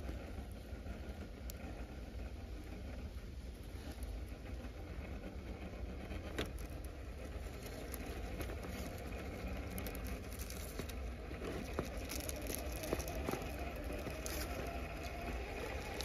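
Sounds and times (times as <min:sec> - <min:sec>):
faint motor whine: 0:00.0 - 0:16.0
tyres crunching on stone and gravel: 0:07.5 - 0:16.0.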